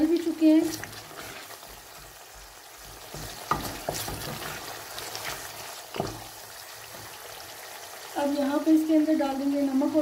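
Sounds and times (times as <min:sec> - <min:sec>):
oil sizzling: 0:00.0 - 0:10.0
wooden spoon scraping a pan: 0:00.1 - 0:07.2.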